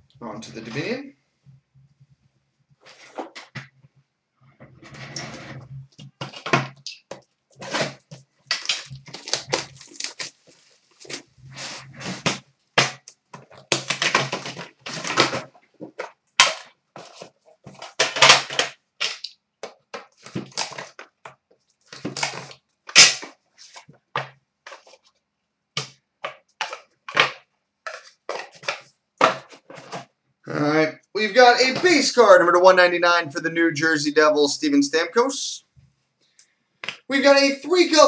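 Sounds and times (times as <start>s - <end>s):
plastic wrap crinkling: 6.0s - 18.6s.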